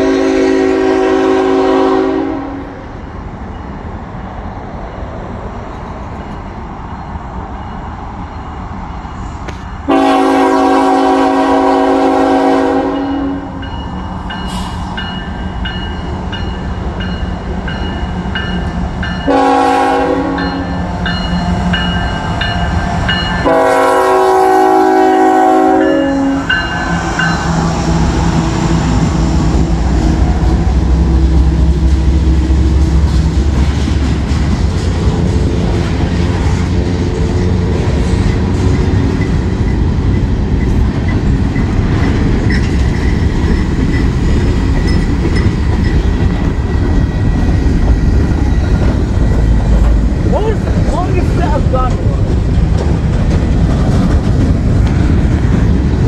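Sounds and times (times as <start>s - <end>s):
locomotive air horn: 0.0s - 2.8s, 9.9s - 13.6s, 19.3s - 20.8s, 23.4s - 26.7s
diesel locomotive engine: 0.0s - 56.0s
train wheel noise: 0.0s - 56.0s
crossing signal bell ringing: 12.9s - 19.5s, 20.3s - 23.7s, 25.8s - 27.6s.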